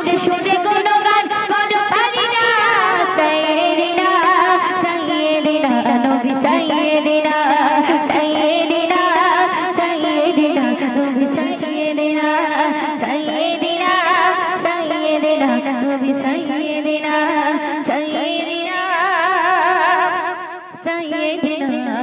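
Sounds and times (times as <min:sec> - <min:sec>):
woman singing into a microphone: 0:00.0 - 0:22.0.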